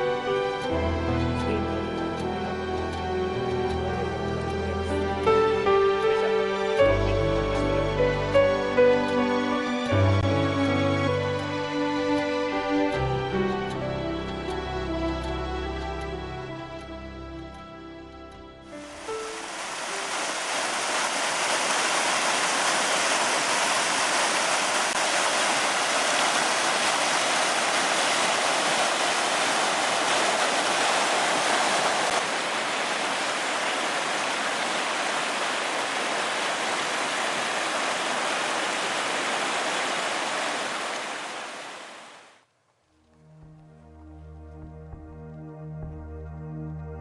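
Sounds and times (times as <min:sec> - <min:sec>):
stream rushing over rocks: 0:18.8 - 0:42.4.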